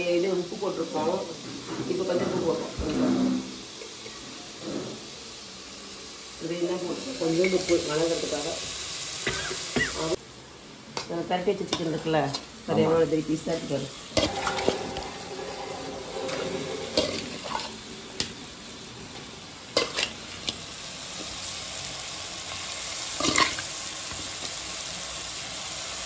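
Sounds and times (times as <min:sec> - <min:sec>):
masala sizzling in pan: 0:00.0 - 0:26.0.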